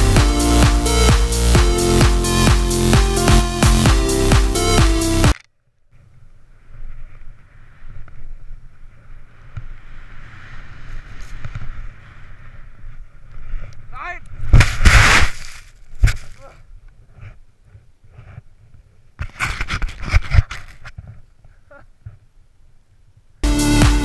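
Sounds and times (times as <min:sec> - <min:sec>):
wind rumbling on camera: 0:05.8 - 0:22.4
skis hissing through snow: 0:06.6 - 0:13.7, 0:14.4 - 0:16.5
skier crashing into snow: 0:14.4 - 0:16.6.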